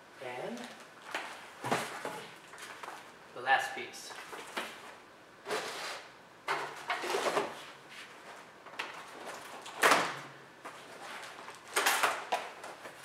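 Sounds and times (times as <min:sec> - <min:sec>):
cardboard and plastic wrap rustling: 0:00.5 - 0:03.1, 0:06.8 - 0:09.9, 0:10.6 - 0:13.0.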